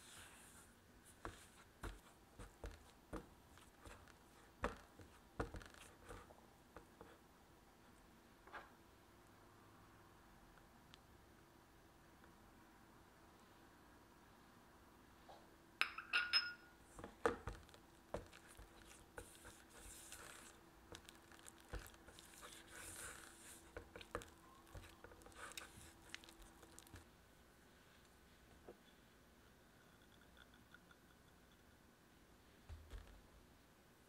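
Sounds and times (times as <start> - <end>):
spatula scraping bowl: 18.2 - 27.0.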